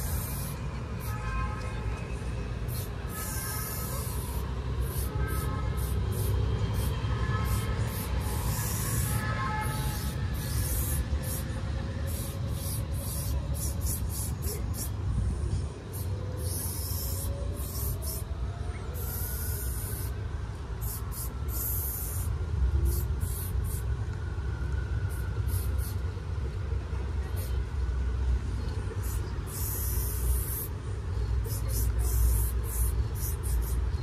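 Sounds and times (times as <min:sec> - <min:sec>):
spray can hissing: 0:00.0 - 0:01.1, 0:02.6 - 0:11.5, 0:12.1 - 0:15.0, 0:15.9 - 0:18.3, 0:19.0 - 0:20.1, 0:20.8 - 0:22.3, 0:22.9 - 0:23.9, 0:25.1 - 0:26.0, 0:29.0 - 0:30.7, 0:31.5 - 0:34.0.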